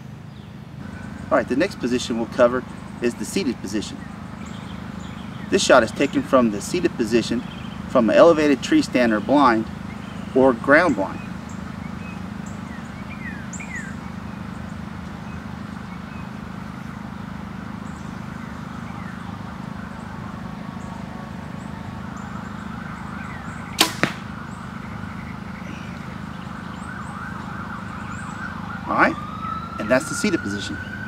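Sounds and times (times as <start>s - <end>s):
bow string crack: 23.8s - 24.4s.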